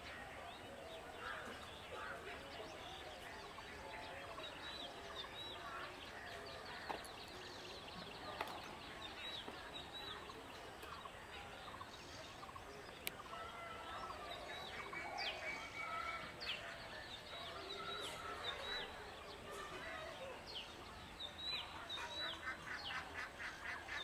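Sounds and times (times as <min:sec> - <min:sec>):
birds chirping: 0:00.0 - 0:24.0
faint steady background noise: 0:00.0 - 0:24.0
longer bird calls: 0:00.0 - 0:24.0.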